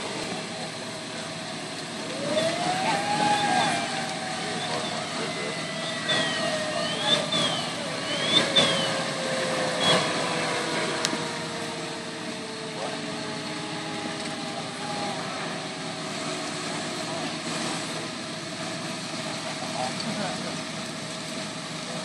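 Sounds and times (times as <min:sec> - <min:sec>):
fire engines running: 0:00.0 - 0:22.0
tone falling in pitch: 0:02.1 - 0:16.4.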